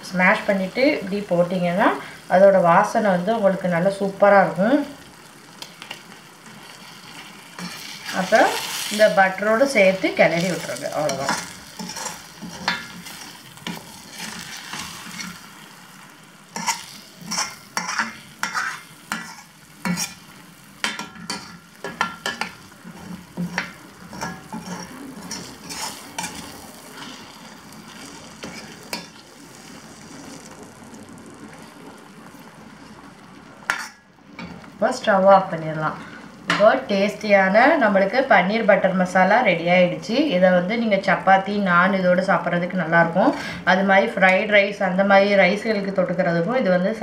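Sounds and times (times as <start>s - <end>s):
gravy sizzling in a pan: 0.0s - 47.0s
spoon scraping a pan: 6.6s - 15.5s, 16.5s - 29.2s, 33.7s - 34.6s.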